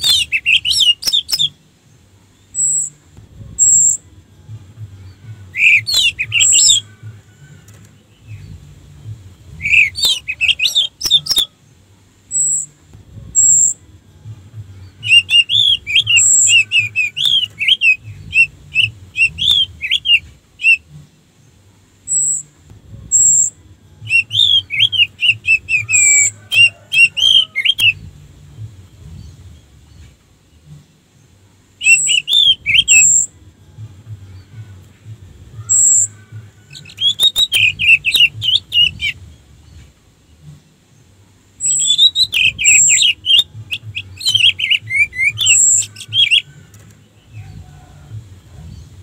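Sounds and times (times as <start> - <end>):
thrush chirping and whistling: 0.0 - 1.6, 5.6 - 7.0, 9.6 - 11.6, 15.0 - 20.9, 24.1 - 28.0, 31.8 - 33.3, 35.6 - 39.2, 41.6 - 46.5.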